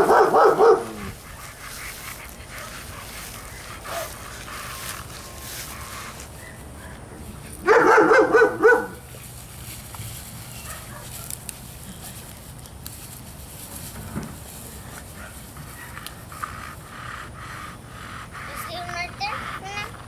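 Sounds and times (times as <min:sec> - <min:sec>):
dog barking: 0:00.0 - 0:01.1, 0:07.6 - 0:09.0, 0:10.6 - 0:11.4.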